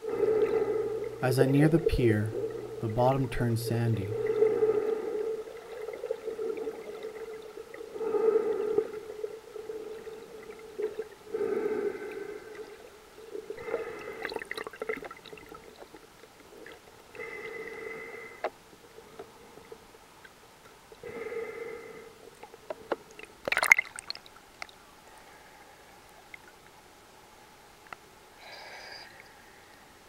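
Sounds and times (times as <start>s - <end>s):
gurgling water: 0.0s - 26.9s
breathing through a snorkel: 4.2s - 5.7s, 7.9s - 10.0s, 11.3s - 12.8s, 13.6s - 14.5s, 17.2s - 18.5s, 21.0s - 22.2s.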